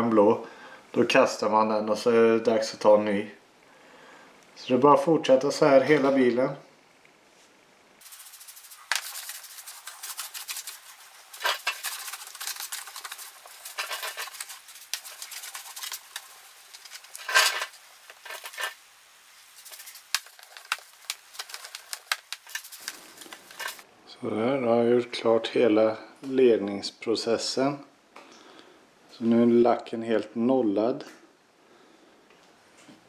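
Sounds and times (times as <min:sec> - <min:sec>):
clay bar rubbing on car paint: 0:08.0 - 0:17.1.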